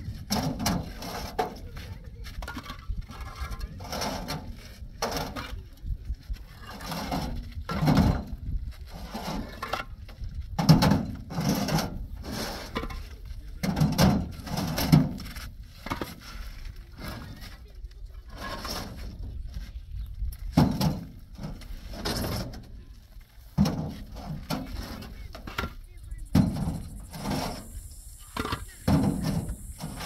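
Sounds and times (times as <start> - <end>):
people talking: 0.8 - 8.1, 12.3 - 15.4, 16.4 - 20.0, 22.1 - 30.0.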